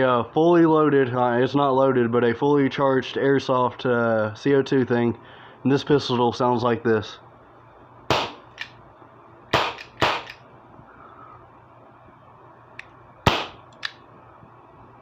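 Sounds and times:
air pistol shots: 0:08.1 - 0:08.8, 0:09.5 - 0:10.4, 0:13.2 - 0:14.0.

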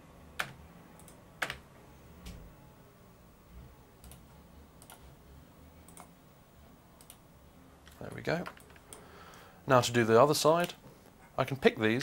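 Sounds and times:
keyboard and mouse clicks: 0:04.8 - 0:05.0, 0:05.9 - 0:06.1, 0:07.9 - 0:09.0.

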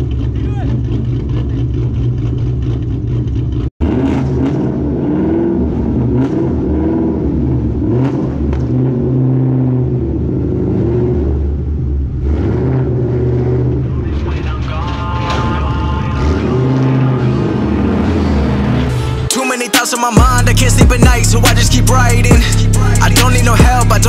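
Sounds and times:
car engine lumpy idle: 0:00.0 - 0:03.7, 0:13.7 - 0:17.8, 0:20.2 - 0:24.0.

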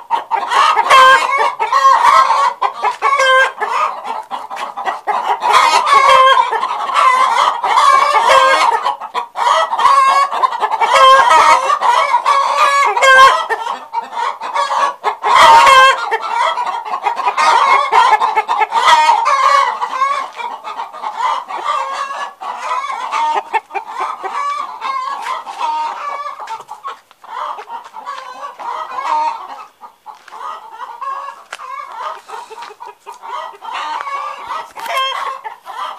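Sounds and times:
chickens clucking: 0:00.0 - 0:35.9.

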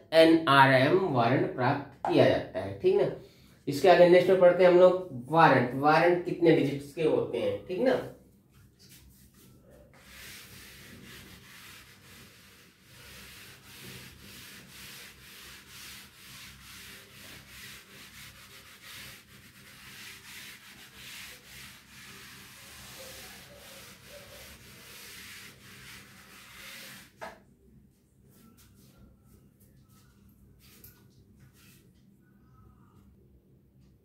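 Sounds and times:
duster rubbing on chalkboard: 0:07.9 - 0:27.4.

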